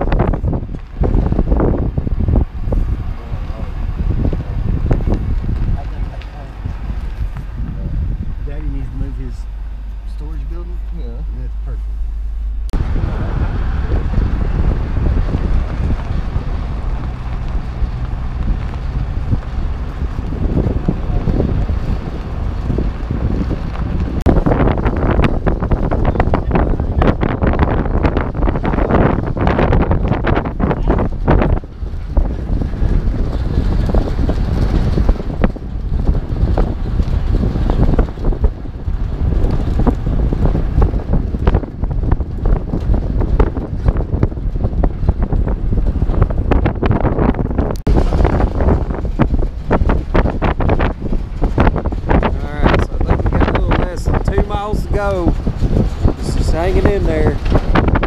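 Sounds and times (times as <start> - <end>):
trailer knocks and rattles: 0.0 - 58.0
vehicle rumble at road speed: 0.0 - 58.0
wind buffeting microphone: 0.0 - 58.0.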